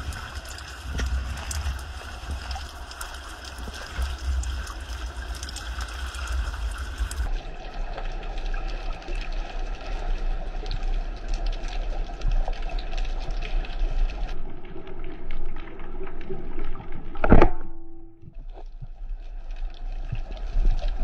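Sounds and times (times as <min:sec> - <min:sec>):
crackle of small clicks: 0:00.0 - 0:21.0
underwater low rumble: 0:00.0 - 0:21.0.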